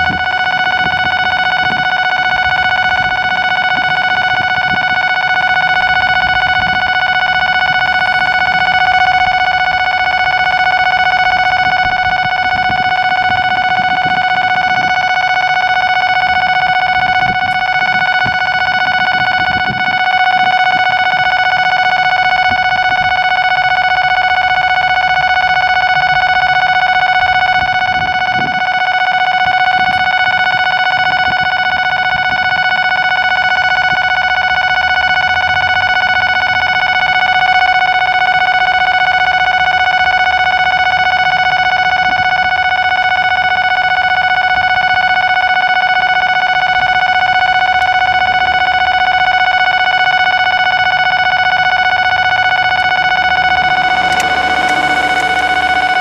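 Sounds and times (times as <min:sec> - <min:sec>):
level crossing alarm ringing: 0:00.0 - 0:56.0
diesel locomotive rumble: 0:50.5 - 0:56.0.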